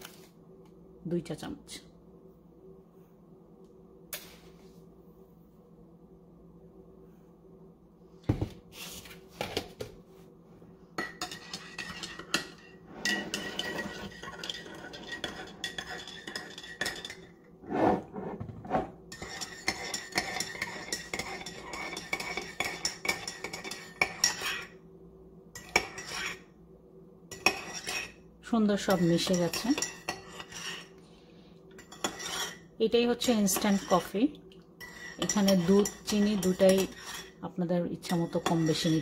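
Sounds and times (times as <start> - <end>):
spoon scraping mug: 11.0 - 24.8, 25.6 - 26.5, 27.3 - 28.2, 28.8 - 31.0, 31.8 - 34.2, 34.8 - 37.4, 38.0 - 39.0
teaspoon clinking in a mug: 19.2 - 24.6, 34.8 - 37.3.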